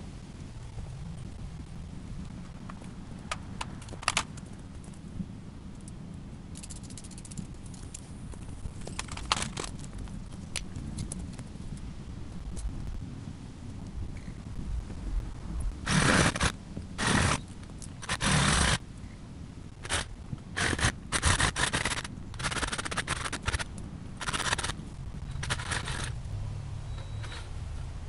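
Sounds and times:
reciprocating saw cutting wood: 15.9s - 18.8s, 19.8s - 26.1s.

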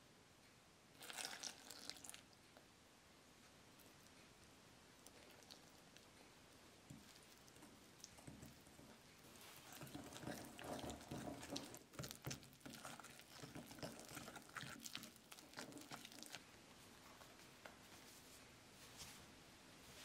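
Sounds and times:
fork scraping and clicking on bowl: 9.6s - 16.4s.

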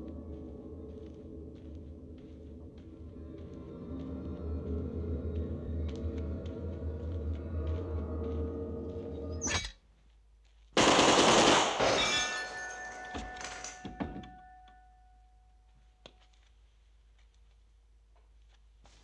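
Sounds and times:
machine-gun burst: 10.8s - 12.0s.

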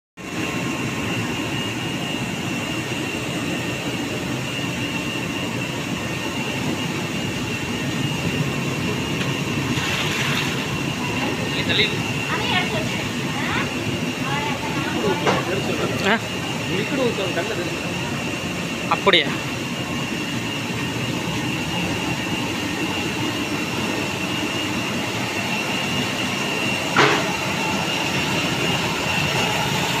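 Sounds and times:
constant high whine: 0.2s - 30.0s
steady machine drone: 0.2s - 30.0s
water churning and frothing: 8.2s - 15.1s
washing machine mechanical din: 8.2s - 17.8s
water churning: 9.6s - 10.9s.

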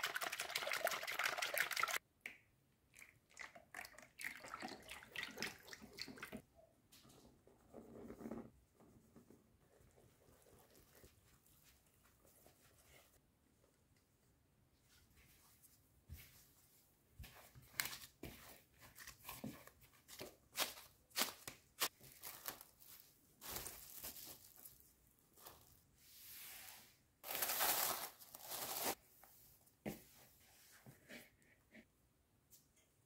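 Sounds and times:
plastic cling film crinkling: 20.6s - 25.8s, 27.2s - 29.0s.

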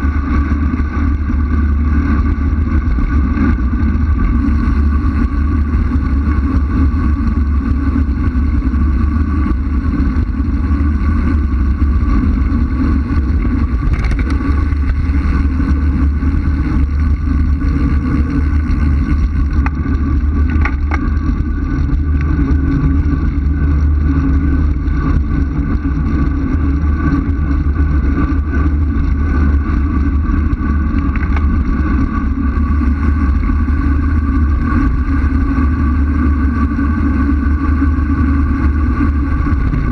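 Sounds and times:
road rumble: 0.0s - 39.9s
wind buffeting microphone: 0.0s - 39.9s.

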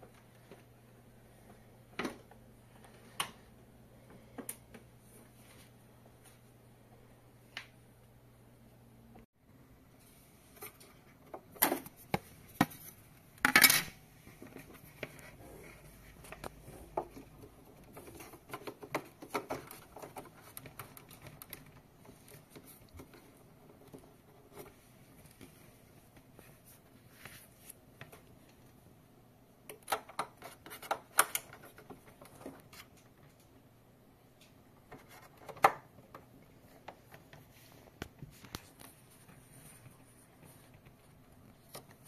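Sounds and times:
plastic clicks and scrapes of cable: 16.1s - 25.5s, 29.7s - 33.5s.

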